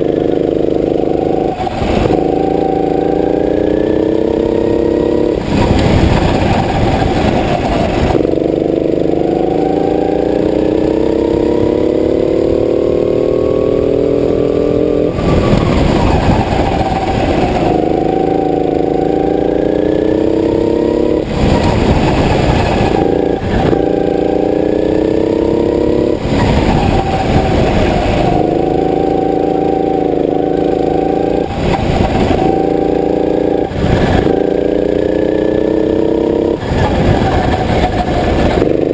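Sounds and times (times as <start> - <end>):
go-kart engine at full throttle: 0.0 - 38.9.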